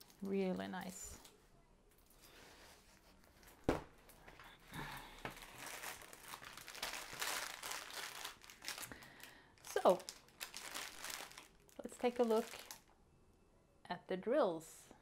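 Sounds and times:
plastic wrapping crinkling: 0.0 - 2.2, 3.3 - 12.9.

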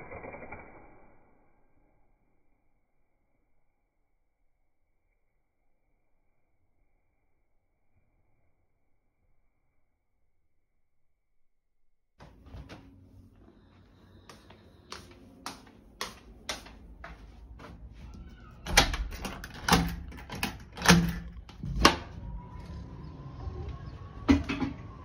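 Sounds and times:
door latch clicks: 18.6 - 22.1.

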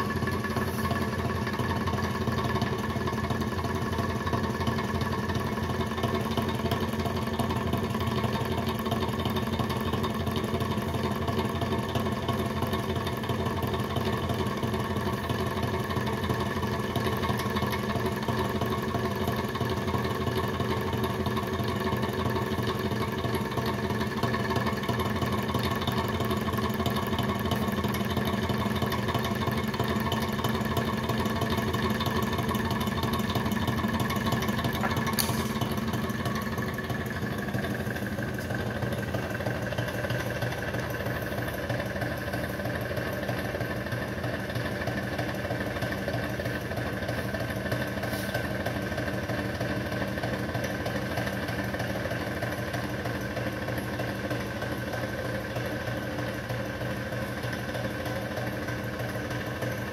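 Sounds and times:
engine crank and piston clatter: 0.0 - 59.9
fan blades whirring: 13.6 - 57.2.

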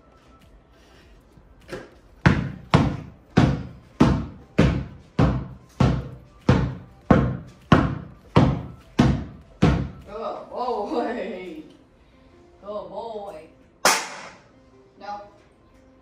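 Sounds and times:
basketball bouncing on carpet: 1.6 - 10.1.

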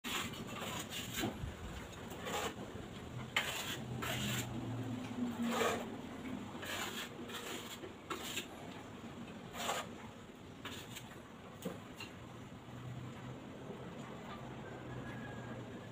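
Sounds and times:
trowel scraping mortar: 0.1 - 2.6, 3.2 - 4.6, 5.3 - 5.9, 6.5 - 8.6, 9.5 - 10.0, 10.6 - 11.2.

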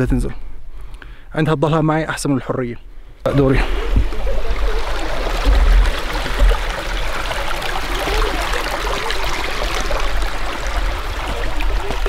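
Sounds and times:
creek running over rocks: 3.3 - 12.0.

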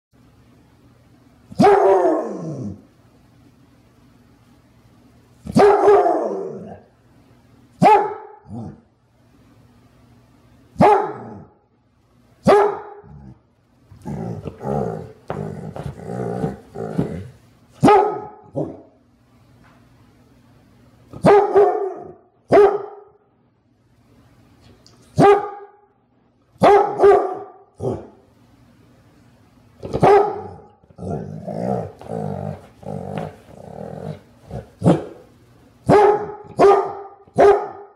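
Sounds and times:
dog barking: 1.5 - 2.4, 5.5 - 6.6, 7.8 - 8.8, 10.8 - 11.5, 12.4 - 13.2, 17.8 - 18.9, 21.2 - 23.2, 25.2 - 25.8, 26.6 - 28.2, 29.8 - 30.7, 34.8 - 37.9.

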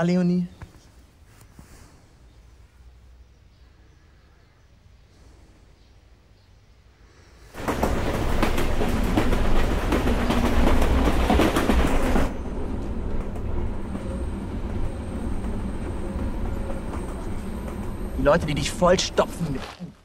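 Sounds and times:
train wheels rumbling and clattering: 7.5 - 19.8
rumble inside train carriage: 7.5 - 20.0.

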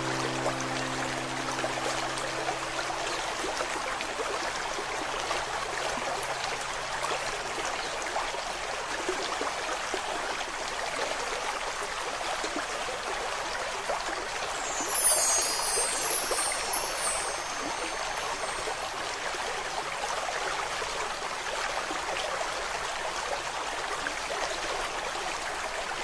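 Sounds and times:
low held music note: 0.0 - 4.8
stream babbling: 0.0 - 13.5, 14.4 - 25.6.

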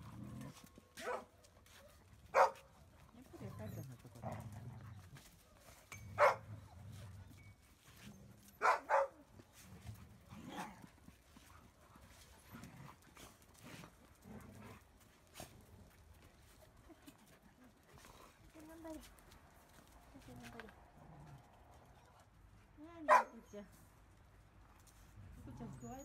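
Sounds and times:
dogs yapping: 1.0 - 2.6, 6.2 - 6.5, 8.6 - 9.1.

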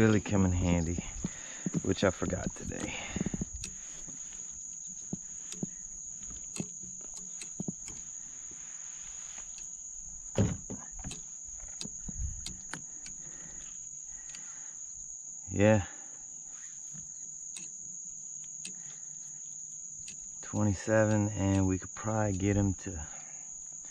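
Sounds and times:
insect chorus: 0.0 - 23.9
thump: 10.3 - 11.2.

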